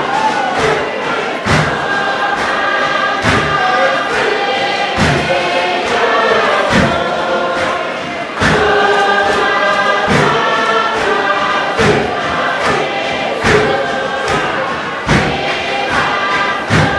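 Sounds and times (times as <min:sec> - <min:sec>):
group singing in harmony: 0:00.0 - 0:16.9
wooden box drum thuds: 0:01.4 - 0:01.9, 0:05.0 - 0:05.3, 0:10.0 - 0:10.4, 0:14.3 - 0:16.9.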